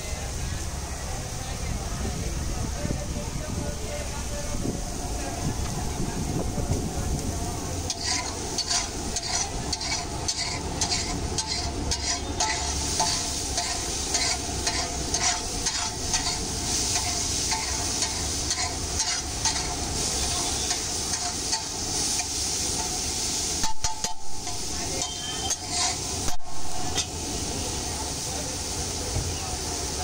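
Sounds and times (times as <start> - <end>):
food sizzling in oil: 5.2 - 30.0
metal spatula scraping on iron pan: 7.9 - 27.2.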